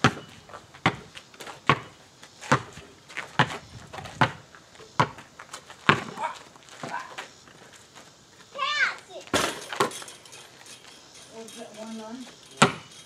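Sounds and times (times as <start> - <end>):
basketball bouncing on asphalt: 0.0 - 7.7, 12.6 - 12.9.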